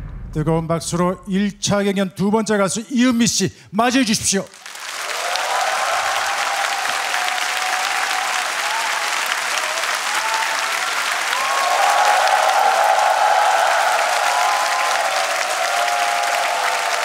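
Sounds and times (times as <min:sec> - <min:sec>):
audience applauding: 0:04.5 - 0:17.0
people cheering: 0:04.5 - 0:17.0.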